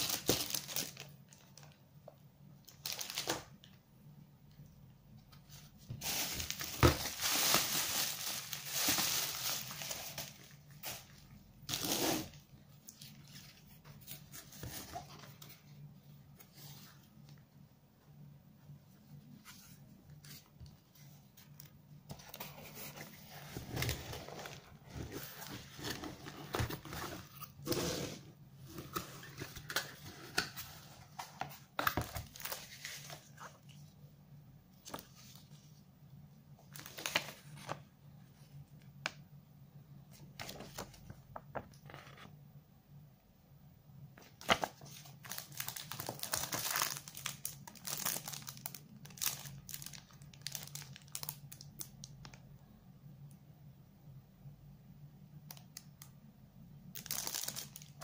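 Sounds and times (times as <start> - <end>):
plastic and paper crinkling: 0.0 - 1.8, 2.6 - 3.8, 5.3 - 15.7, 28.7 - 33.9, 36.6 - 37.9, 44.2 - 52.4, 57.0 - 58.0.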